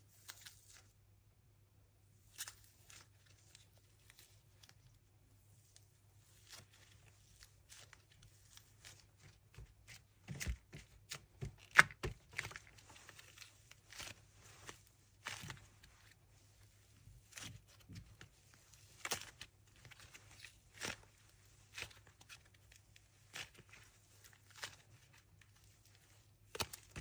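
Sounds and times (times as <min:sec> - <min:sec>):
paper crinkling and crackling: 0:05.7 - 0:27.0.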